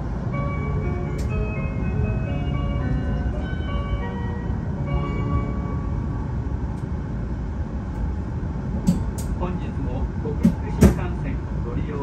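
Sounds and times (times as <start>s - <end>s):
train chime melody: 0.0s - 7.3s
train rumbling at speed: 0.0s - 12.0s.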